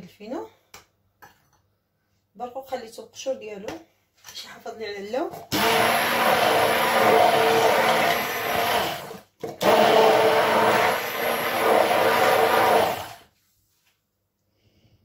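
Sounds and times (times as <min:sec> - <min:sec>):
immersion blender motor hum: 0:05.5 - 0:13.3.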